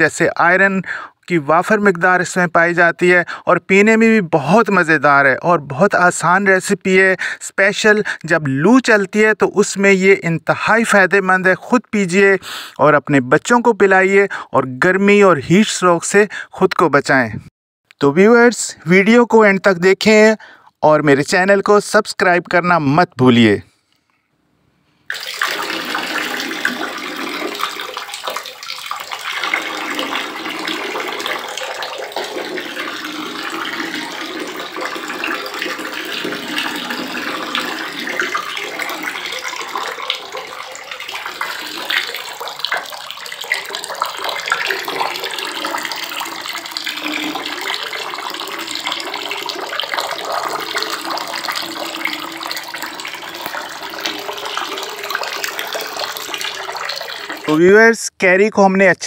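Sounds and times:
water stream splashing on fruit: 0:25.1 - 0:57.5.

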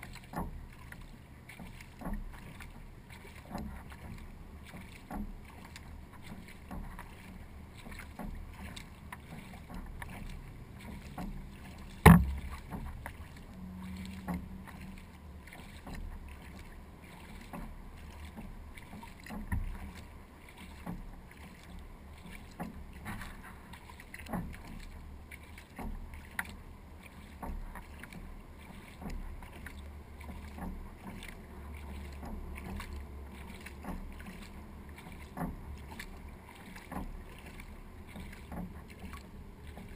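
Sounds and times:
paddle strokes and drips: 0:00.0 - 0:39.9
knocks on kayak hull: 0:11.9 - 0:13.1.

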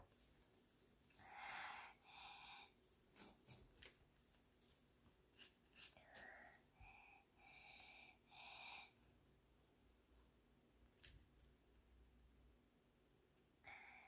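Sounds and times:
faint breathy sounds: 0:01.0 - 0:03.4, 0:05.8 - 0:09.2, 0:13.5 - 0:14.0.

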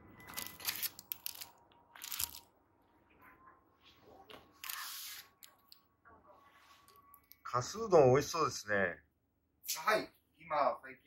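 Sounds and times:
plastic sleeve crinkling: 0:00.3 - 0:02.5.

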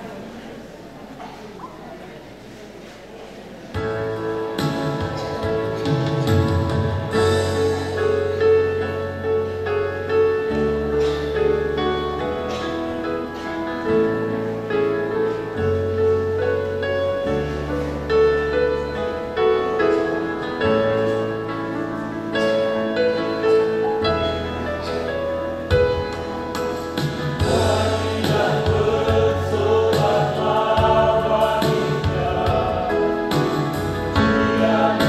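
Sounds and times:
keyboard chords: 0:03.8 - 0:35.0
bass line: 0:27.0 - 0:35.0.

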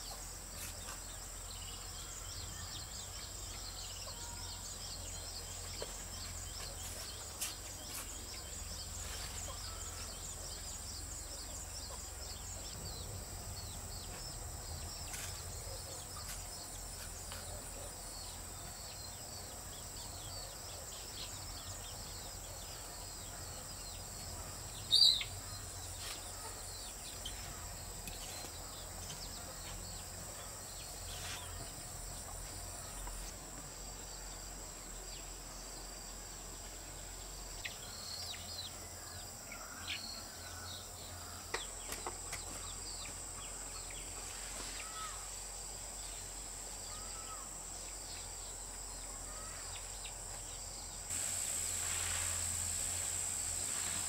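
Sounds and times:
insects droning: 0:00.0 - 0:54.0
bird chirps: 0:24.8 - 0:31.7.

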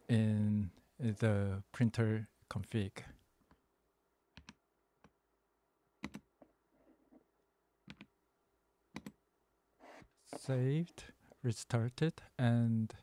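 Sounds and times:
keyboard clicks: 0:04.4 - 0:04.6, 0:06.0 - 0:06.3.

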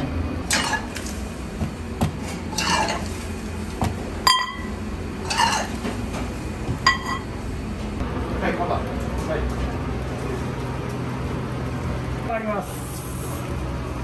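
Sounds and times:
steady low hum: 0:00.0 - 0:14.0
bowls and utensils clattering: 0:00.4 - 0:03.2, 0:03.8 - 0:06.0, 0:06.8 - 0:07.3.

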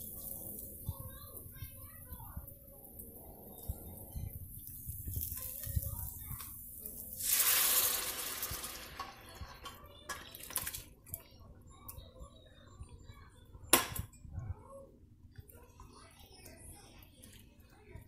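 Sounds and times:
liquid splashing into a pan: 0:06.9 - 0:10.9.

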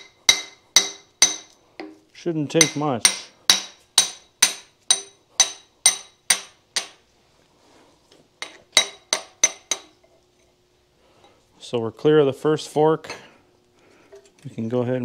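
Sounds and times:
hammer striking steel punch: 0:00.0 - 0:02.0, 0:02.6 - 0:07.0, 0:08.4 - 0:09.9.

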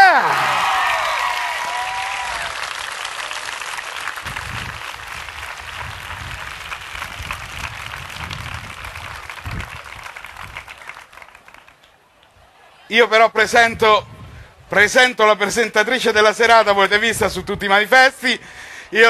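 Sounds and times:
crowd applauding: 0:00.0 - 0:12.7.

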